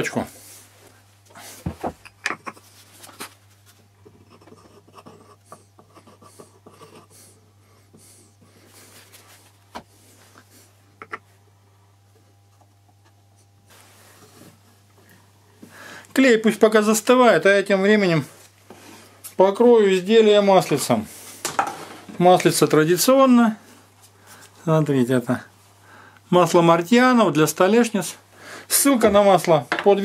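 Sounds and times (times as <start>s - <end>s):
steady low hum: 0.0s - 30.0s
soft rubbing and scraping: 8.4s - 10.8s, 13.0s - 14.8s.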